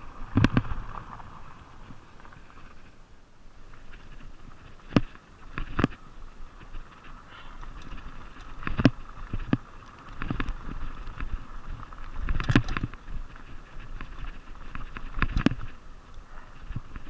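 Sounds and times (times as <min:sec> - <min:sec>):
tyre and wind rush: 0:00.0 - 0:17.0
bike clunks and rattles: 0:07.7 - 0:15.7.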